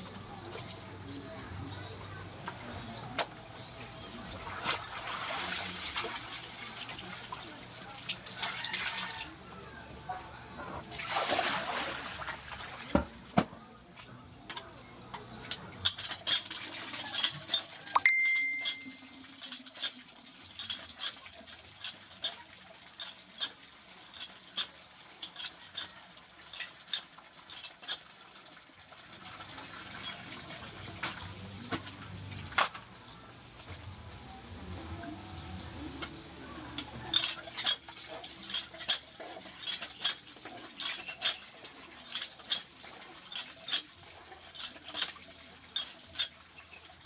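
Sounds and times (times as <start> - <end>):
water sloshing in plastic basin: 2.5 - 9.4, 10.8 - 13.5
water gushing from pump spout: 2.5 - 9.6, 10.8 - 13.1, 16.1 - 18.0, 19.0 - 34.8, 36.9 - 47.0
pump handle clanking: 15.8 - 28.2, 36.8 - 47.0.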